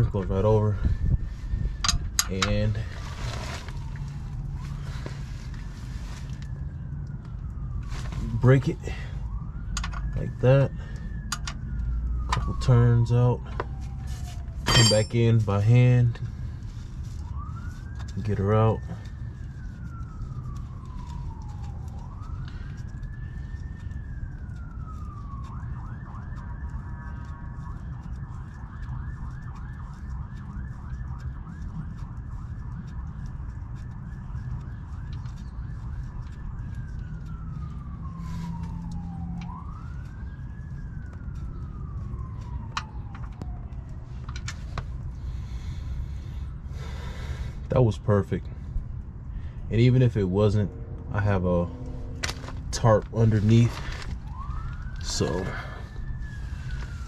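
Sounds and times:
low rumble: 0.0 - 10.3, 48.4 - 57.0
steady low rumble: 0.0 - 29.2, 30.4 - 57.0
siren wailing and yelping: 0.0 - 47.8, 48.4 - 57.0.

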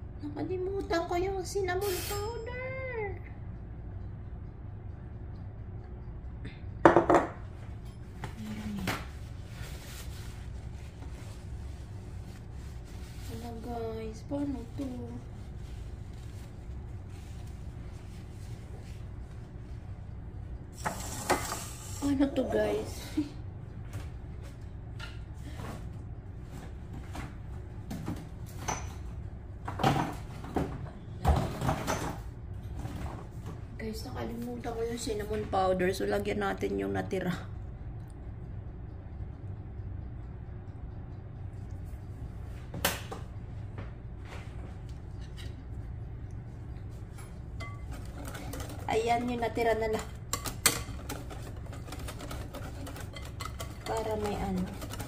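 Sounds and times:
steady low hum: 0.0 - 55.0
glass bowl knocking on stone countertop: 6.8 - 7.4
kitchen knocks and clatters: 6.8 - 9.2, 27.0 - 33.4, 47.1 - 55.0.

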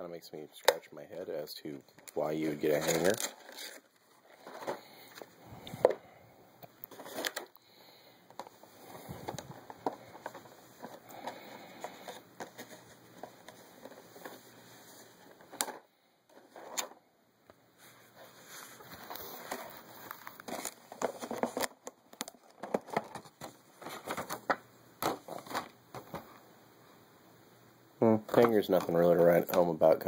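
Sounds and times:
plastic packaging clicking and crackling: 1.9 - 6.0, 6.6 - 7.7, 8.3 - 14.4, 18.8 - 26.3.

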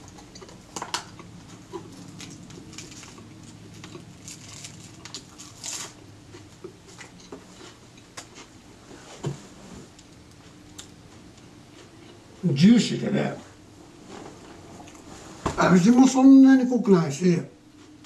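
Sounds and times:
crunching while eating: 0.0 - 13.2
low steady hum: 0.0 - 18.0
lettuce leaves tearing: 1.2 - 6.0.

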